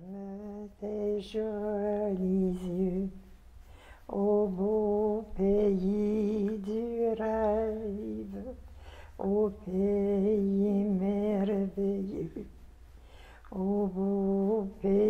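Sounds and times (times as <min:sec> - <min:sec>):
woman singing slow tune: 0:00.0 - 0:03.2, 0:04.0 - 0:08.6, 0:09.2 - 0:12.5, 0:13.4 - 0:15.0.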